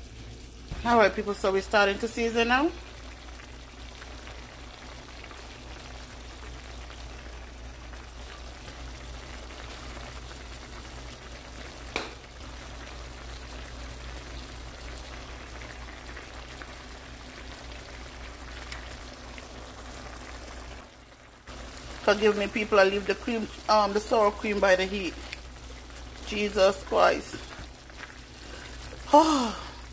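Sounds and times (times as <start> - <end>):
sauce bubbling in a pan: 0.0 - 29.9
sharp tap: 11.9 - 12.2.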